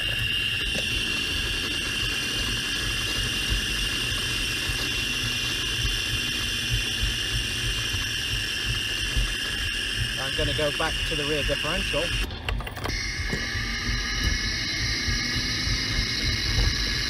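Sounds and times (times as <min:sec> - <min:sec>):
mechanical whine over rumble: 0:00.0 - 0:17.0.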